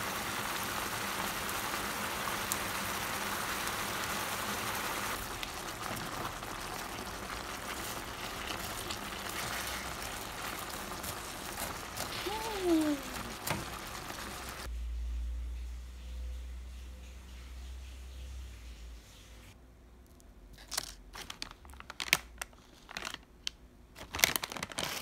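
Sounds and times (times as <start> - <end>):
chicken sizzling in a pan: 0.0 - 14.7.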